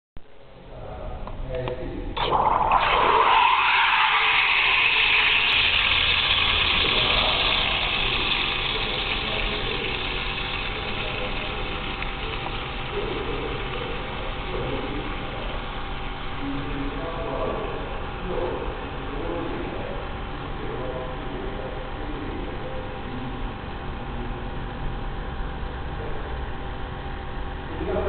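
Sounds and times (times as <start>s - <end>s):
steam wand hissing: 2.2s - 17.2s.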